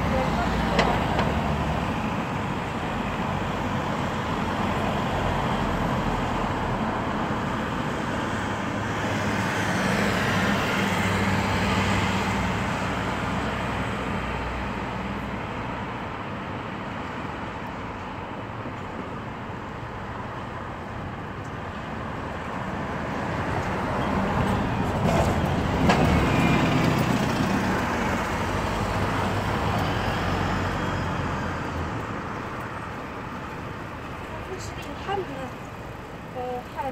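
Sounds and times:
vehicles on road: 0.0s - 36.9s.

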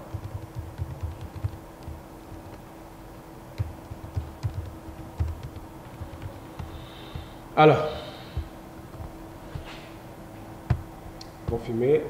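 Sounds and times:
steady low hum: 0.0s - 12.0s
keyboard key clicks: 0.1s - 2.4s.

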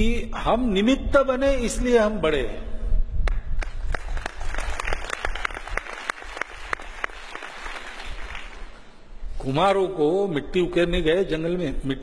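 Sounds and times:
audience applauding: 3.6s - 8.8s.

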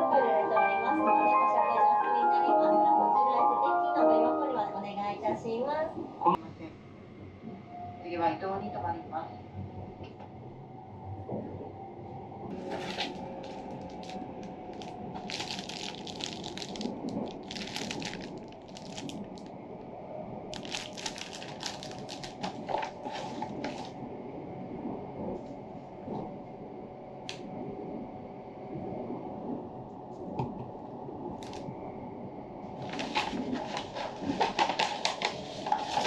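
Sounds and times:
train rumbling inside carriage: 0.0s - 36.0s
paper bag crinkling: 12.5s - 19.5s, 20.5s - 23.9s, 31.4s - 31.6s, 32.8s - 36.0s
plastic wrapping rustling: 12.5s - 19.5s, 20.5s - 23.9s, 31.4s - 31.6s, 32.8s - 36.0s.

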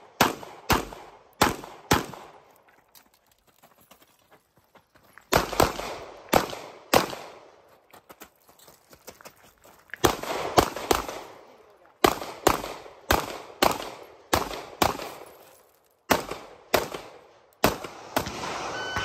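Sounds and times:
pistol shots echoing: 0.0s - 2.4s, 5.3s - 7.5s, 10.0s - 15.4s, 16.1s - 18.7s.

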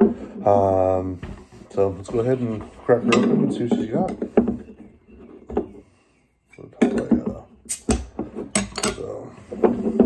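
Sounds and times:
bottle cap snapping off: 7.7s - 8.1s.

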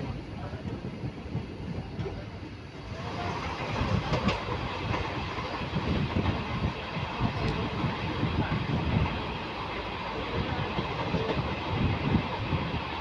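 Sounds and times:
train rushing noise: 0.0s - 13.0s
train wheels clattering over joints: 3.3s - 6.5s.

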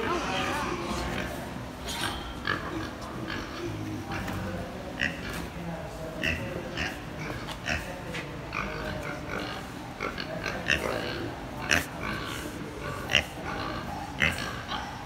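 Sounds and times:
pigs making short calls: 8.6s - 15.0s.

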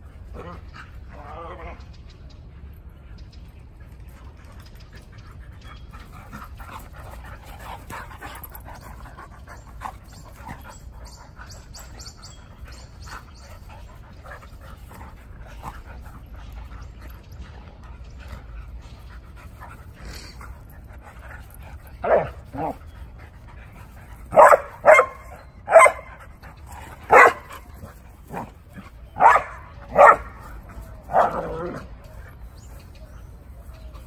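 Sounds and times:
dogs panting: 0.0s - 34.0s.

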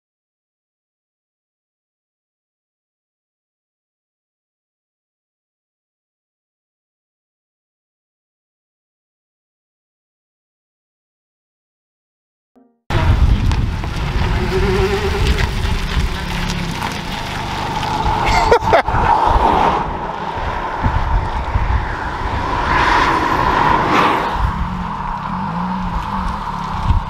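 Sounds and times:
car engine driving past: 12.9s - 27.0s
wind rumble on microphone: 12.9s - 27.0s.

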